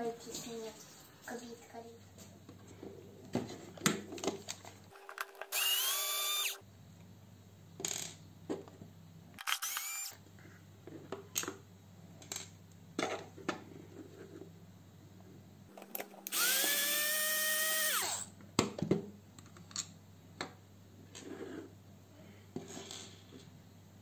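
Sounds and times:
cordless screwdriver motor whine: 0:05.2 - 0:06.6, 0:09.4 - 0:10.2, 0:16.2 - 0:18.3.

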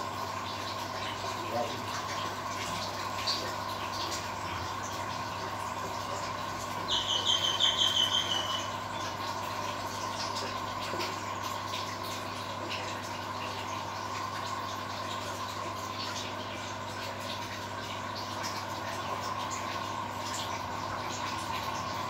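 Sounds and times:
aquarium air pump humming and bubbling: 0:00.0 - 0:22.0
bird trilling: 0:06.9 - 0:08.8.

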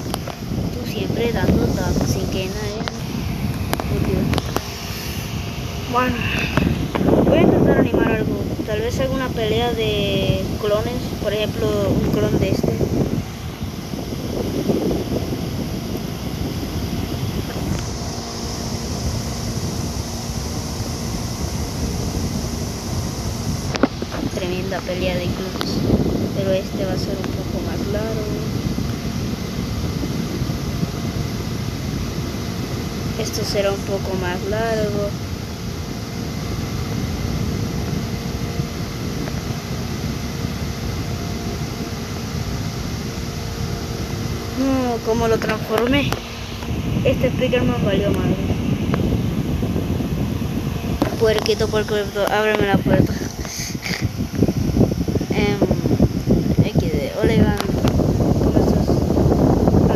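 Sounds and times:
faint constant hum: 0:00.0 - 0:59.9
low rumbling: 0:00.0 - 0:59.9
hiss: 0:53.1 - 0:54.2.

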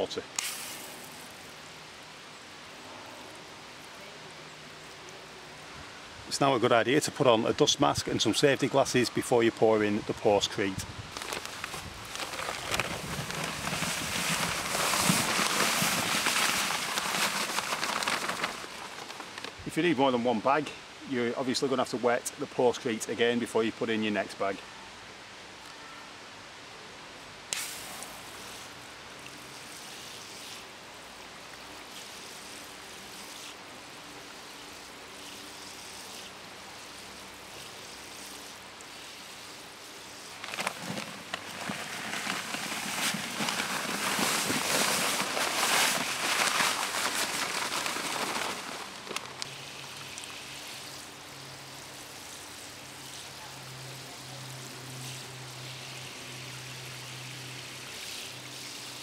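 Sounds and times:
concrete mix pouring hiss: 0:00.0 - 0:01.8, 0:10.7 - 0:19.6, 0:27.5 - 0:59.0
hose nozzle spraying water: 0:00.4 - 0:01.4, 0:27.5 - 0:28.6.

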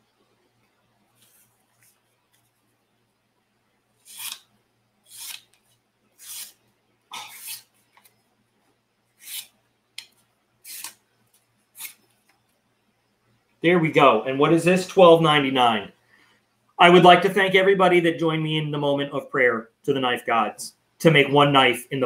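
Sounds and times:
hands scraping a small object: 0:06.2 - 0:06.6, 0:07.3 - 0:08.1, 0:09.2 - 0:10.1, 0:10.7 - 0:11.0.

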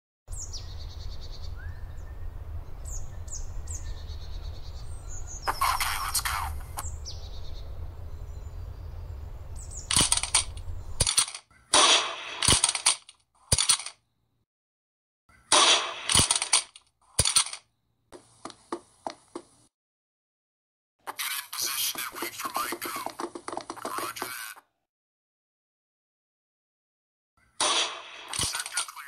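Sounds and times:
birds chirping: 0:00.3 - 0:11.8, 0:21.2 - 0:24.6
gunshot sound effects: 0:11.8 - 0:12.7, 0:15.5 - 0:16.4, 0:27.6 - 0:28.7.

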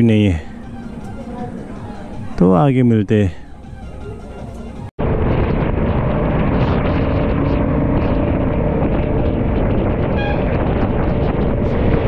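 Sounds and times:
motorcycle engine cruising: 0:03.4 - 0:12.0
wind noise: 0:04.8 - 0:12.0.

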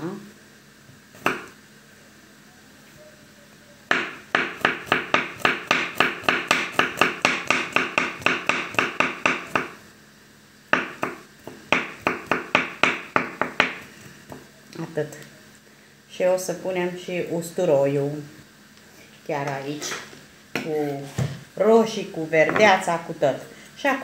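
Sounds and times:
knife chopping on wooden board: 0:01.2 - 0:01.5, 0:03.9 - 0:09.8, 0:10.7 - 0:14.5.

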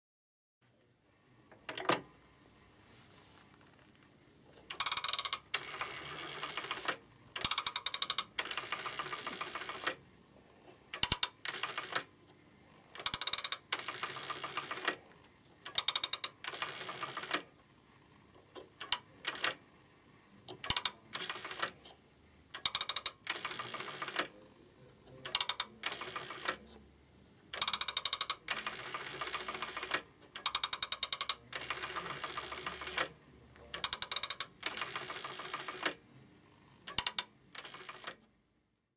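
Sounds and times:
rotary phone dial clicking: 0:04.7 - 0:10.0, 0:10.9 - 0:12.1, 0:12.9 - 0:15.0, 0:15.6 - 0:17.5, 0:18.6 - 0:19.6, 0:20.5 - 0:21.9, 0:22.5 - 0:24.4, 0:25.2 - 0:26.6, 0:27.5 - 0:33.1, 0:33.7 - 0:36.0, 0:36.8 - 0:38.2.

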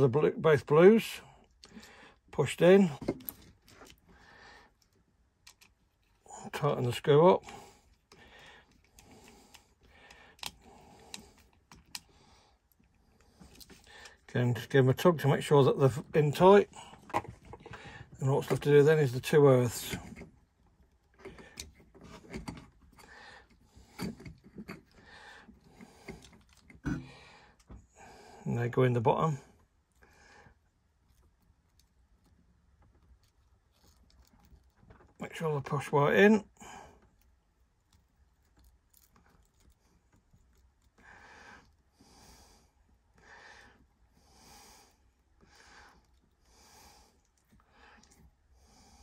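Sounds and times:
small clicks of wires: 0:04.8 - 0:06.2, 0:08.0 - 0:12.1.

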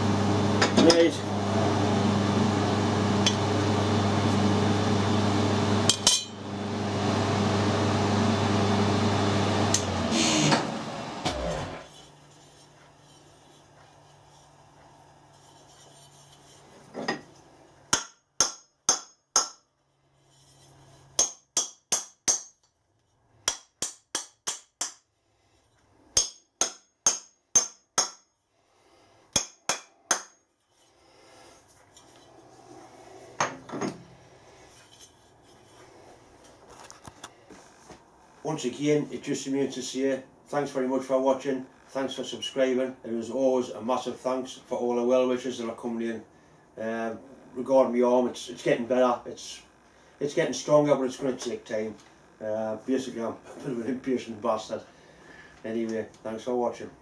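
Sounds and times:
electric motor humming: 0:00.0 - 0:12.0.

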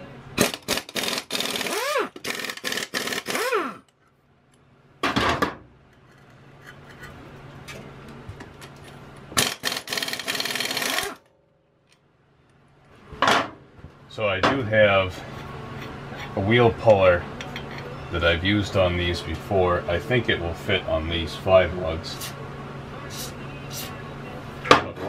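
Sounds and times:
pneumatic impact wrench hammering: 0:00.4 - 0:03.9, 0:09.4 - 0:11.3.

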